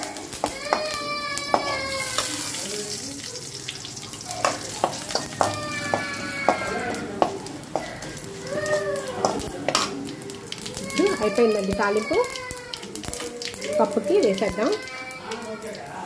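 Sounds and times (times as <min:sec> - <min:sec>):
spices sizzling in hot oil: 0:00.0 - 0:16.0
metal spoon scraping pan: 0:04.3 - 0:06.9.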